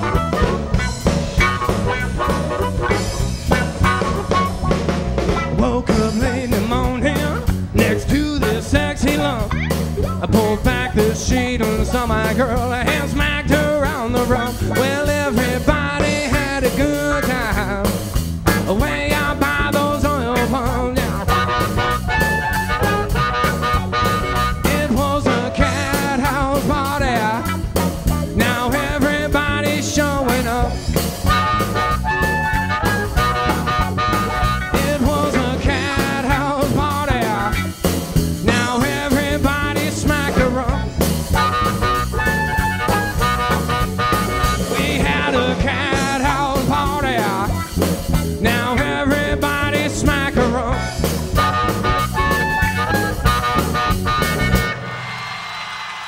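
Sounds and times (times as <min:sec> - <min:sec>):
harmonica: 0:00.0 - 0:04.8, 0:21.2 - 0:26.1, 0:31.2 - 0:37.1, 0:41.3 - 0:45.5, 0:51.2 - 0:54.9
blues-rock band playing: 0:00.0 - 0:56.0.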